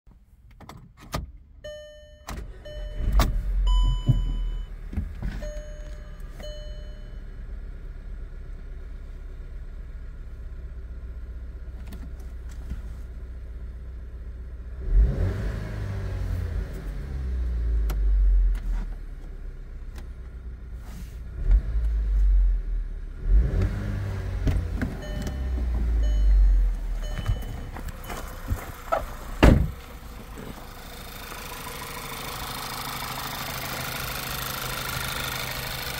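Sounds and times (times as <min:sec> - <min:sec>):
electronic warning chimes: 0:01.7 - 0:04.7, 0:05.4 - 0:07.2, 0:25.0 - 0:28.2
car engine starting and revving: 0:02.3 - 0:35.9.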